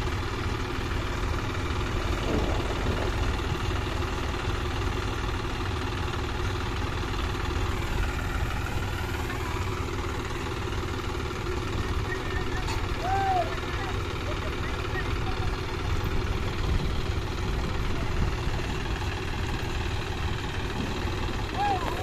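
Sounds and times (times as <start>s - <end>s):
tractor diesel engine running: 0.0s - 22.0s.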